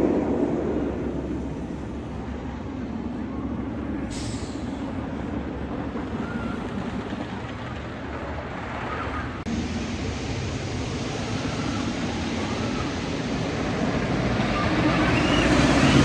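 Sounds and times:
roller coaster machinery rumble: 0:00.0 - 0:16.0
air hiss: 0:04.1 - 0:05.0.

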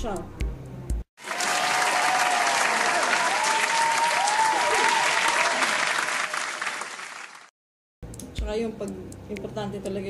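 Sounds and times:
crowd applause: 0:01.2 - 0:07.5.

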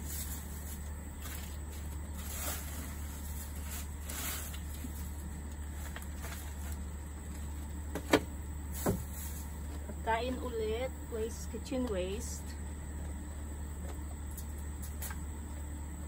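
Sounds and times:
dry leaves rustling: 0:00.0 - 0:07.8, 0:08.7 - 0:09.9
steady low hum: 0:00.0 - 0:16.0.

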